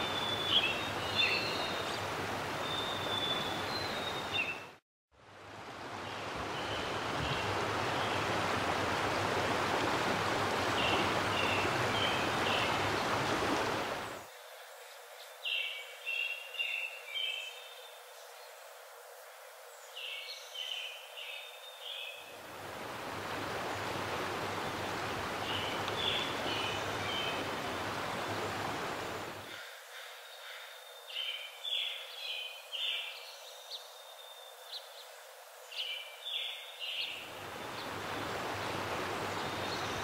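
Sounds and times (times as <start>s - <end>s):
running water rush: 0.0s - 14.3s, 22.3s - 29.5s, 37.1s - 40.0s
birds chirping: 23.2s - 29.4s.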